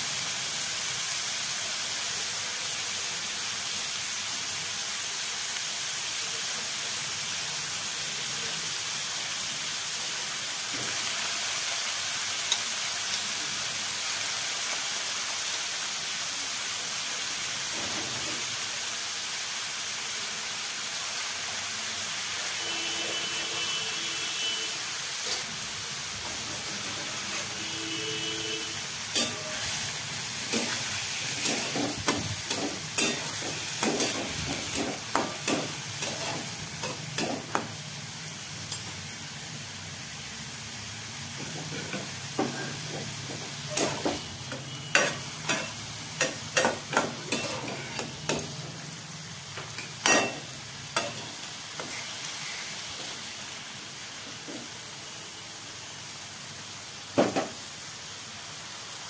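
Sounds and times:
food sizzling in a wok: 0:00.0 - 0:59.0
metal spatula scraping pan: 0:29.1 - 0:37.6, 0:41.4 - 0:48.6.

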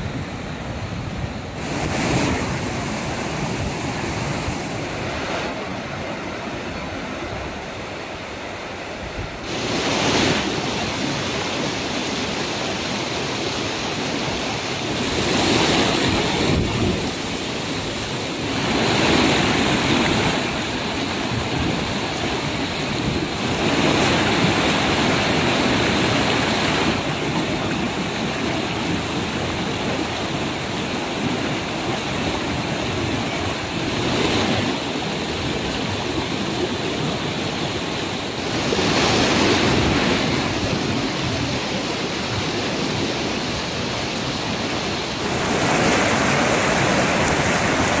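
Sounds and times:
water crashing over rocks: 0:00.0 - 0:06.8, 0:09.4 - 0:48.0.

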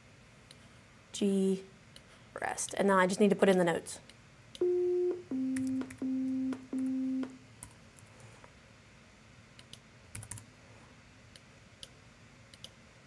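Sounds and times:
computer beep tones: 0:04.6 - 0:07.4
keyboard and mouse clicks: 0:09.6 - 0:10.4, 0:11.8 - 0:12.8.

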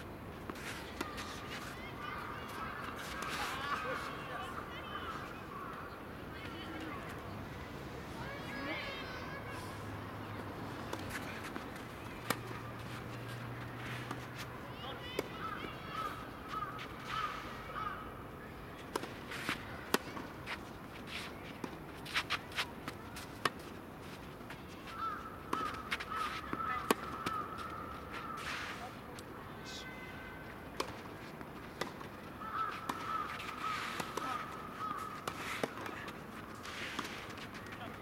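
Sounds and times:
rackets striking tennis ball: 0:18.9 - 0:23.6, 0:25.4 - 0:28.5, 0:30.7 - 0:38.0.

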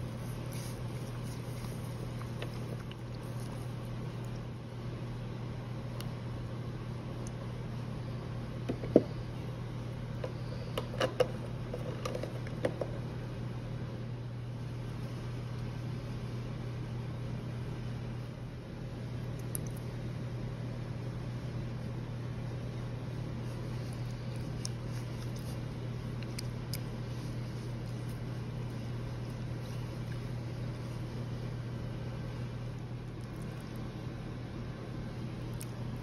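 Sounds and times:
low mechanical hum: 0:00.0 - 0:36.0.

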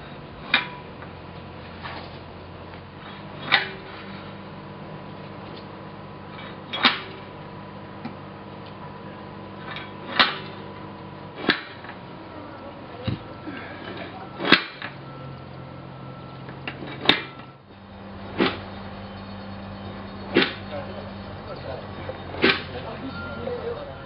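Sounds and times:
metallic clanks on rail: 0:00.0 - 0:04.4, 0:06.3 - 0:07.4, 0:09.6 - 0:12.0, 0:13.0 - 0:15.6, 0:16.2 - 0:24.0
steady low hum: 0:00.0 - 0:24.0.

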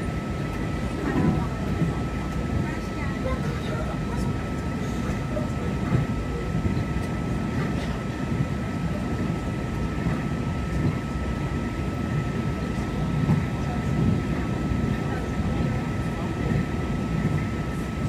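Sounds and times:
train car low rumble: 0:00.0 - 0:18.0.

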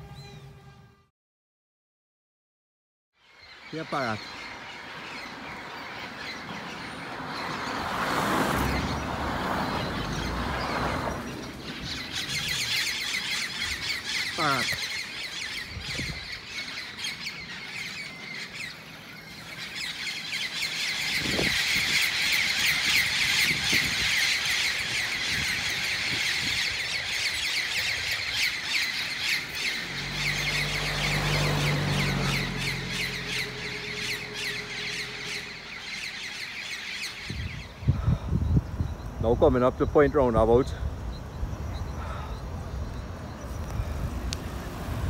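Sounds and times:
parrots squawking: 0:09.6 - 0:37.9.

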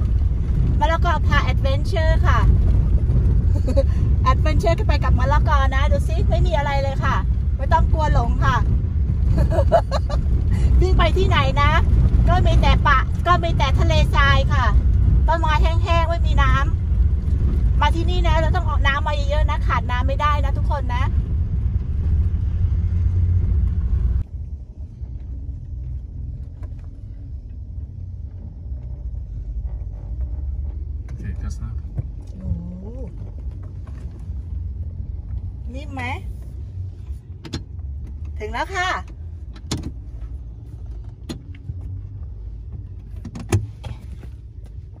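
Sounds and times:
vehicle rumble on dirt: 0:00.0 - 0:45.0
knocks and clicks in car: 0:26.2 - 0:35.6, 0:37.3 - 0:45.0.

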